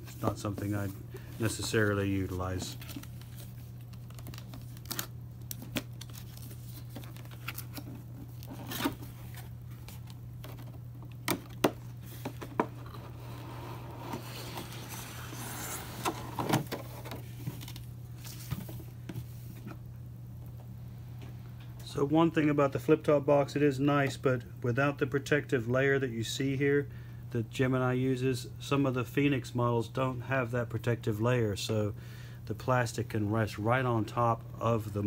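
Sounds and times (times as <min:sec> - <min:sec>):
steady low hum: 0:00.0 - 0:35.0
plastic crinkling and rustling: 0:00.1 - 0:11.1.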